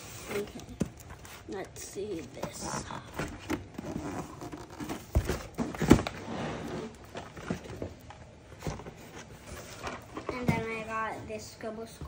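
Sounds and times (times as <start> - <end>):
cardboard rustling: 0.0 - 11.1
boxes knocking against cardboard: 2.4 - 6.2.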